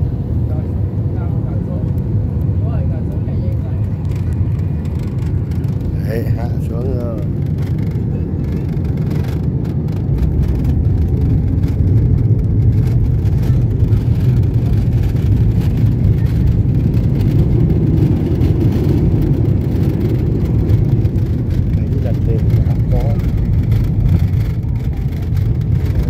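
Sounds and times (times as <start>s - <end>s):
airliner engines and wheels rumbling: 0.0s - 26.0s.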